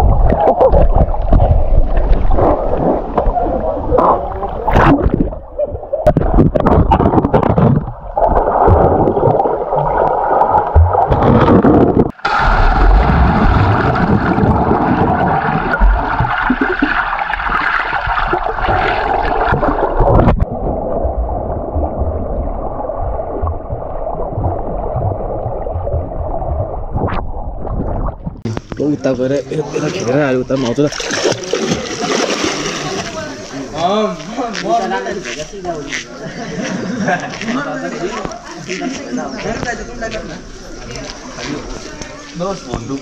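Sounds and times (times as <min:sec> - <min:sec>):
underwater gurgling and bubbling: 0:00.0 - 0:28.8.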